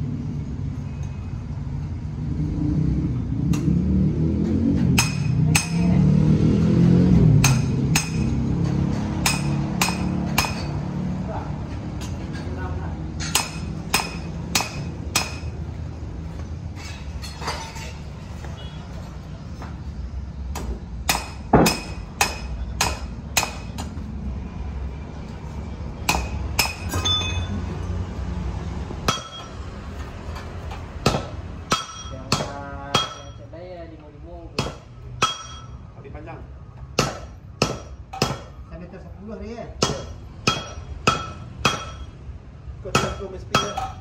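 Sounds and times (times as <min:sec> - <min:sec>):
hammer striking metal: 0:04.8 - 0:05.9, 0:07.4 - 0:11.0, 0:13.2 - 0:15.6, 0:20.5 - 0:23.9, 0:26.0 - 0:27.7, 0:29.0 - 0:29.7, 0:31.0 - 0:33.5, 0:34.6 - 0:35.8, 0:36.9 - 0:38.6, 0:39.8 - 0:42.2, 0:42.9 - 0:44.0.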